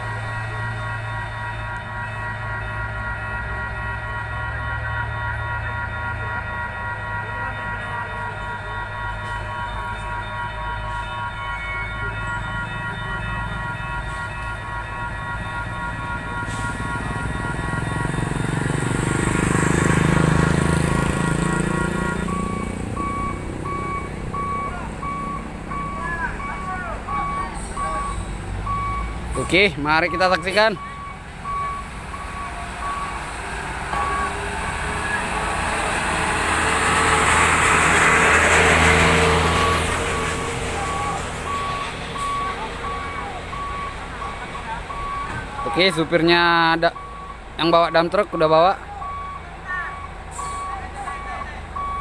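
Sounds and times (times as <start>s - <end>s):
high electronic tone: 0.0s - 47.4s
truck driving past: 0.0s - 52.0s
truck reversing alarm beeping: 0.0s - 52.0s
motorcycle engine passing: 17.8s - 23.9s.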